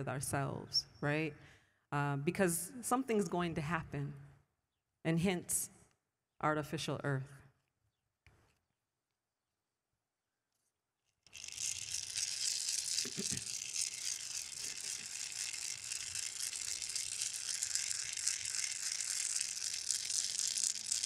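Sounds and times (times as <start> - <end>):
hand rattle shaking: 11.3 - 21.0.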